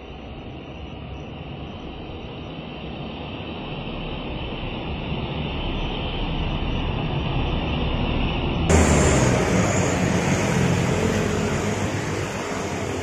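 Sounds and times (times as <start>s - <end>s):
motorcycles passing: 8.7s - 13.0s
truck passing: 8.7s - 13.0s.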